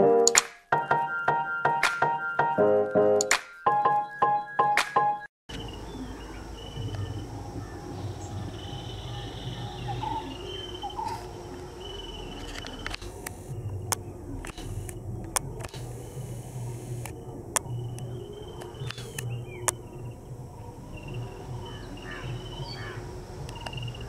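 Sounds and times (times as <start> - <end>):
sharp clicks: 0.2 - 0.6, 12.4 - 19.8, 23.4 - 24.0
insects and birds chirping: 5.5 - 24.0.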